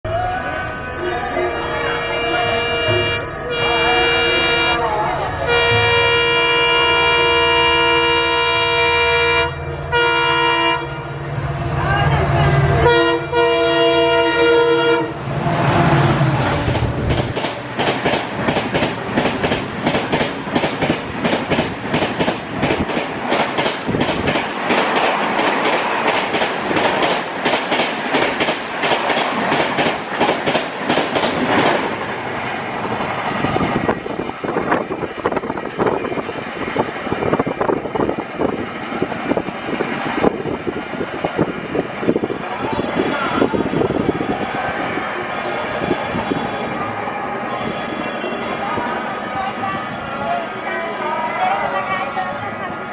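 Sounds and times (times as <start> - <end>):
locomotive horn blasts: 0.6 - 11.2, 12.1 - 16.4, 45.8 - 48.8
train wheels clickety-clack: 15.2 - 32.1.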